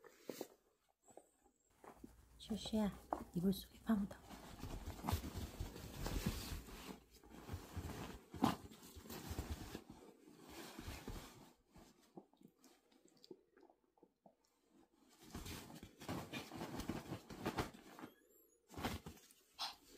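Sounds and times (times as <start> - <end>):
dog rustling in a duvet: 4.2 - 11.9.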